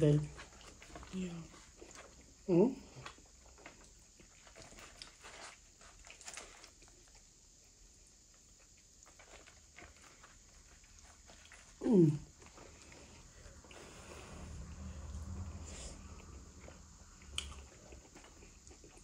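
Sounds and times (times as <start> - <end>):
person chewing: 0.4 - 7.6, 8.4 - 14.4, 15.3 - 19.0.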